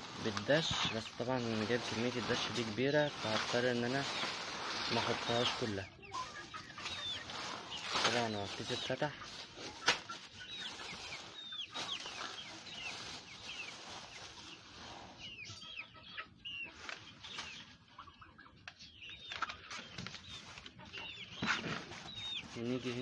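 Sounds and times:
plastic feed bag rustling: 0.0s - 15.2s, 19.4s - 23.0s
chickens chirping and clucking: 0.0s - 23.0s.

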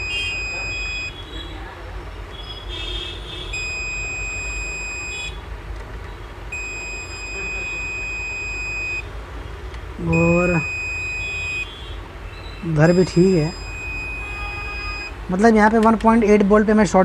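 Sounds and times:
multimeter beeping: 0.0s - 1.2s, 3.5s - 5.4s, 6.5s - 9.1s, 10.0s - 15.2s.

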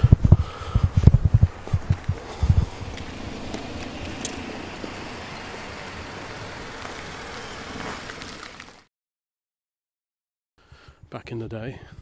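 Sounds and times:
distant engine hum: 0.0s - 8.8s.

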